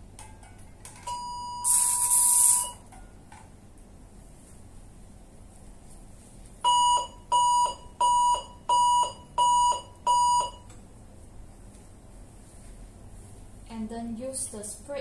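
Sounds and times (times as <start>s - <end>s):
electronic alarm beeps: 1.1s - 2.8s, 6.6s - 10.7s.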